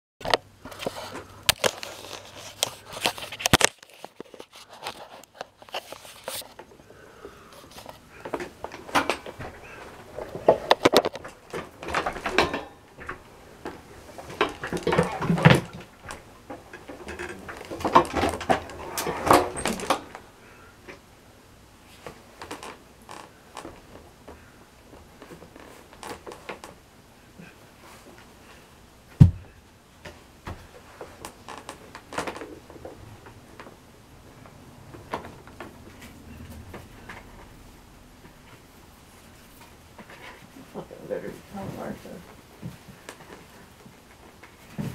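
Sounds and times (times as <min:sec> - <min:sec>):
handling knocks and clicks: 0:07.7 - 0:20.2.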